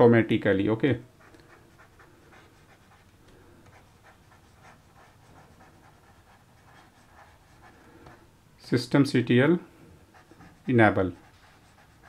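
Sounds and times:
stylus scratching on tablet: 0:01.0 - 0:08.3, 0:10.0 - 0:12.0.

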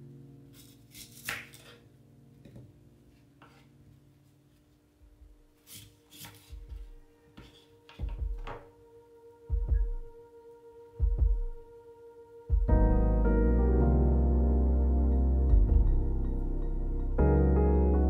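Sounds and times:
knife cutting apple on wooden board: 0:00.5 - 0:01.8, 0:05.6 - 0:06.6.

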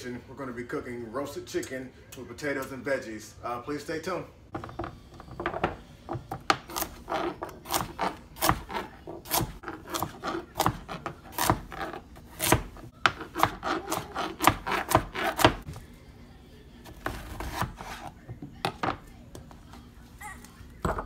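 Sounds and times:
knife chopping carrots on board: 0:06.2 - 0:15.7, 0:16.9 - 0:18.1.

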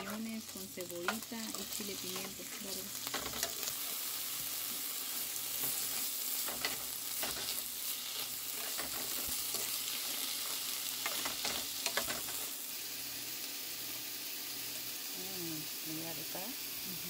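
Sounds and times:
vegetables sizzling in a frying pan: 0:00.0 - 0:17.0
spoon scraping and clicking on pan: 0:03.0 - 0:04.0, 0:05.6 - 0:07.6, 0:08.5 - 0:12.5.

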